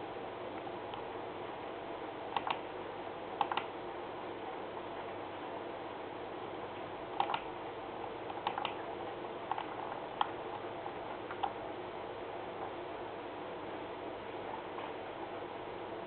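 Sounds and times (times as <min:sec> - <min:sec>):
sharp computer clicks: 0:02.3 - 0:02.6, 0:03.4 - 0:03.7, 0:07.2 - 0:07.5, 0:08.3 - 0:08.8, 0:09.5 - 0:10.4.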